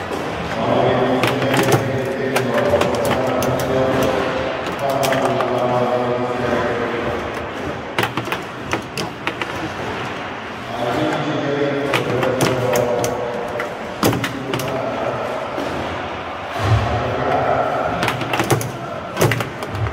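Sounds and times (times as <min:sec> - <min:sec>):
foosball ball cracking: 0:01.1 - 0:05.7, 0:07.4 - 0:10.2, 0:11.8 - 0:14.9, 0:18.0 - 0:19.9.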